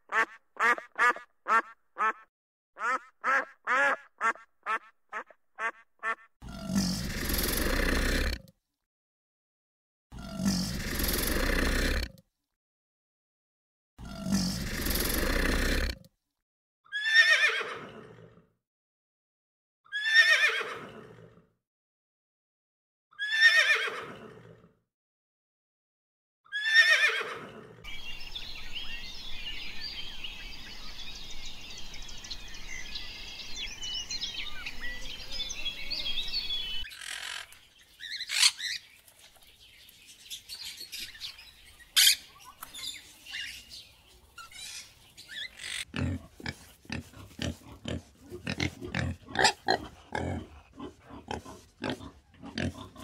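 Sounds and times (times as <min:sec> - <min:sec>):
sharp animal calls: 0:00.1 - 0:02.2, 0:02.8 - 0:06.3, 0:36.9 - 0:38.8, 0:44.4 - 0:53.0.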